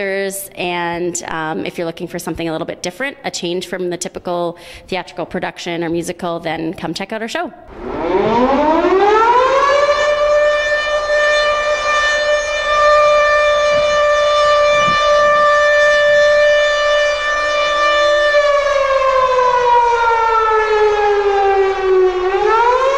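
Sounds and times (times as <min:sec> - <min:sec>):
civil defense siren wailing: 0:07.7 - 0:22.9.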